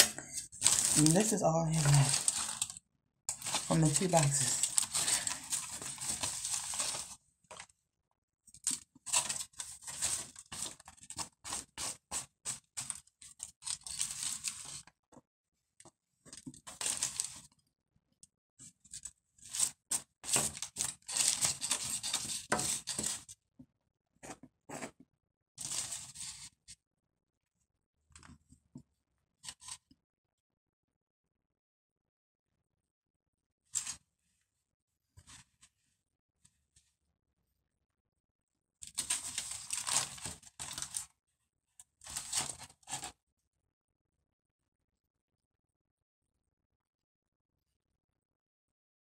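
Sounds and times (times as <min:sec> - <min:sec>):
aluminium foil crinkling: 0:00.2 - 0:07.6, 0:08.6 - 0:14.9, 0:16.6 - 0:17.5, 0:19.5 - 0:23.3, 0:38.8 - 0:41.1.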